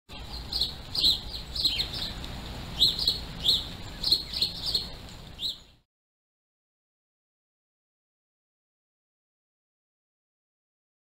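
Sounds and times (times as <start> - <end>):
bird chirping: 0.1 - 5.8
low steady hum: 0.1 - 5.8.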